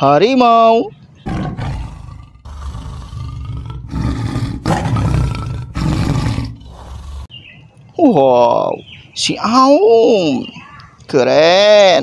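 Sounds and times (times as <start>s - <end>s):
tiger roaring: 1.2s - 7.3s.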